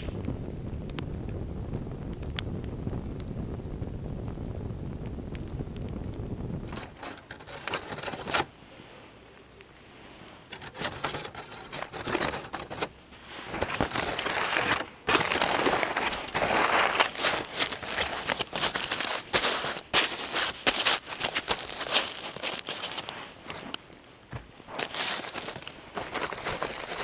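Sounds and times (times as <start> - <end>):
fire crackling: 0.0 - 27.0
aluminium foil crinkling: 6.6 - 8.6, 10.4 - 27.0.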